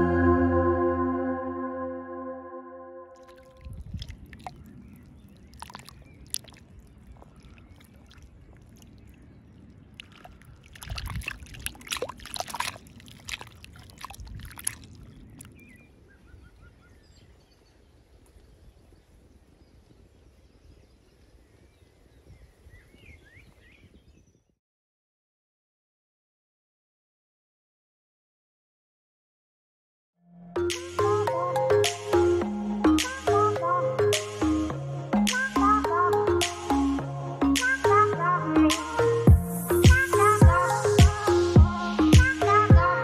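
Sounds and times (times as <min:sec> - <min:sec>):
small waves lapping: 0:03.2 - 0:16.6.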